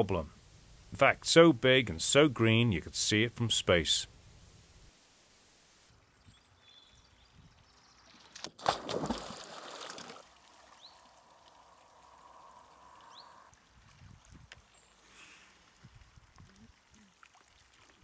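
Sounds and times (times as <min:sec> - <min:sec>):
water churning and lapping: 0:08.2 - 0:13.0, 0:15.5 - 0:18.0
loud splash into water: 0:08.5 - 0:10.3.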